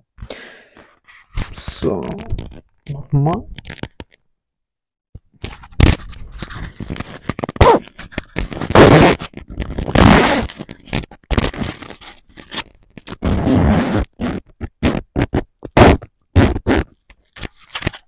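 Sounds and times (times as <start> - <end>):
zipper scraping: 6.3 - 18.0.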